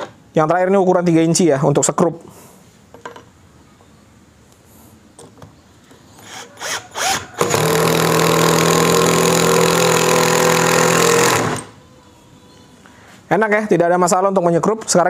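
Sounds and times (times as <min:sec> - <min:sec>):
impact driver hammering: 0:07.4 - 0:11.7.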